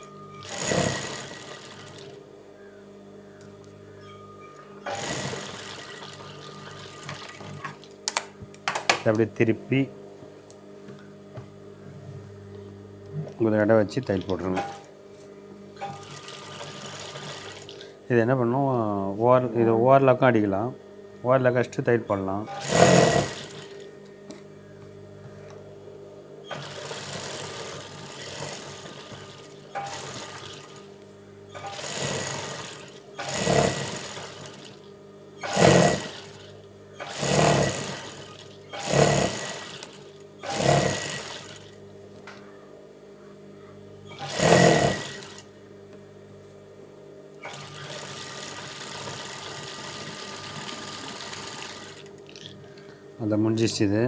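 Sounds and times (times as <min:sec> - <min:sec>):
steady hum: 0:00.0 - 0:54.0
industrial sewing machine stitching: 0:00.4 - 0:02.2, 0:04.9 - 0:07.8, 0:15.8 - 0:17.8, 0:22.5 - 0:23.8, 0:26.5 - 0:30.8, 0:31.6 - 0:34.8, 0:35.4 - 0:41.8, 0:44.1 - 0:45.5, 0:47.4 - 0:52.2.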